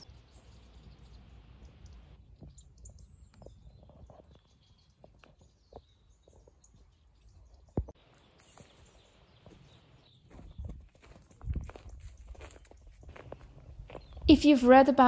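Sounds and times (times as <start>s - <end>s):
bird chirps: 0.0s - 14.3s
footsteps on dry grass: 7.9s - 14.5s.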